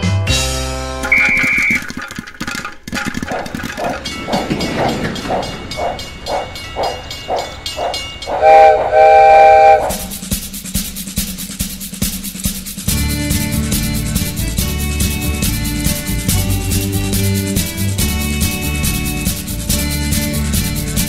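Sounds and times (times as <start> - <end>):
steam locomotive chuffing: 0.3 - 21.0
train rumble: 0.3 - 21.0
steam whistle blowing: 1.1 - 1.9, 8.3 - 10.2.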